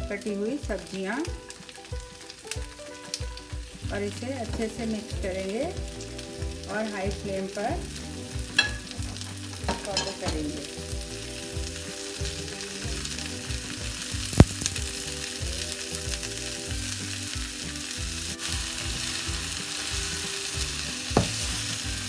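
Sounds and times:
vegetables sizzling in a pan: 0:00.0 - 0:22.0
spatula scraping a pan: 0:18.4 - 0:22.0.

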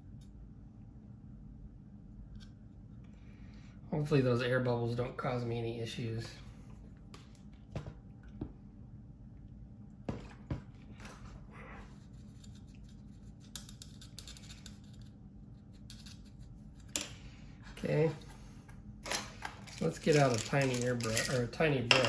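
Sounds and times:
steady low hum: 0:00.0 - 0:22.0
tools clicking and scratching: 0:12.2 - 0:17.2, 0:19.1 - 0:22.0.

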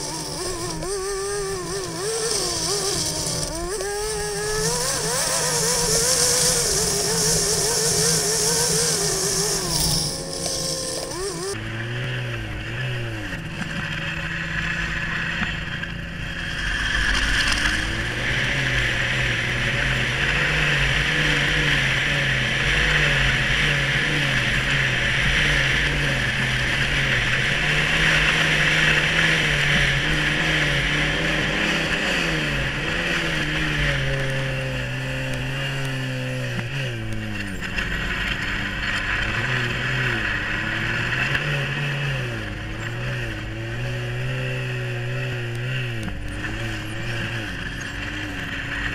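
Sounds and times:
snowmobile engine running: 0:00.0 - 0:48.9.

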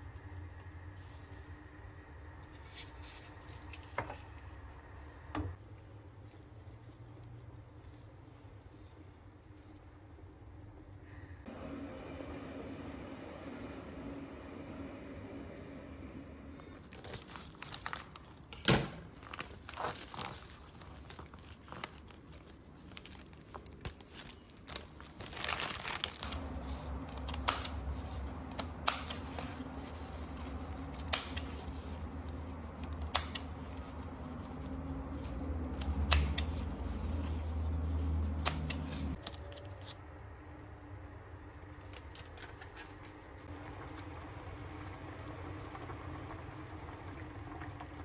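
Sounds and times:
low steady hum: 0:00.0 - 0:48.0
flower stems and leaves rustling: 0:16.8 - 0:39.6
scissors snipping stems: 0:27.0 - 0:29.3, 0:30.8 - 0:31.5, 0:32.8 - 0:33.5, 0:35.7 - 0:36.5, 0:38.3 - 0:39.2.

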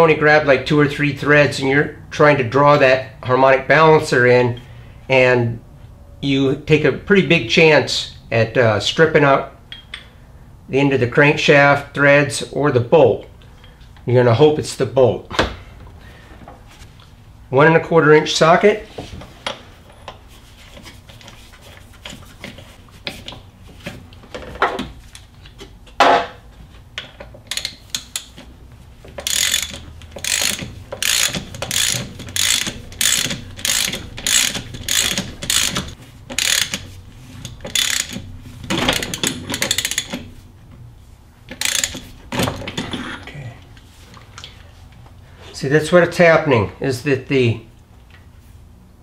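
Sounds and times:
socket ratchet clicking: 0:27.5 - 0:28.4, 0:29.2 - 0:36.9, 0:37.5 - 0:40.3, 0:41.5 - 0:42.1.

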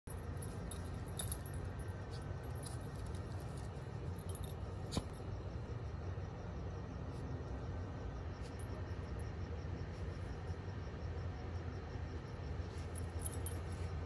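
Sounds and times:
steady low rumble: 0:00.1 - 0:14.0.

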